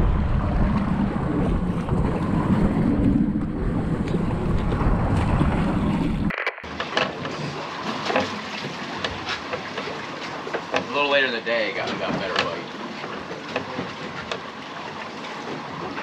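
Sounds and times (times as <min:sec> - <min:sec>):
wind buffeting microphone: 0:00.0 - 0:06.3
sea wash: 0:00.0 - 0:16.0.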